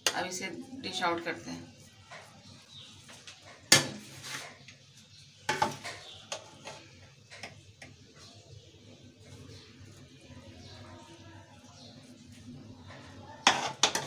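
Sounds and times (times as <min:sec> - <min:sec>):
metal spoon clinking on pot: 0:13.4 - 0:14.0.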